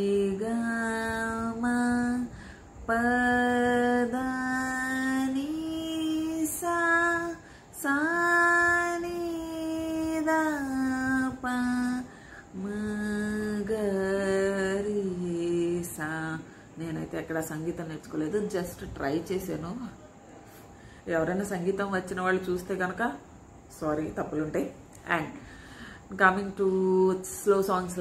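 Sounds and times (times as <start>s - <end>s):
woman singing a scale: 0.0s - 19.9s, 26.1s - 28.0s.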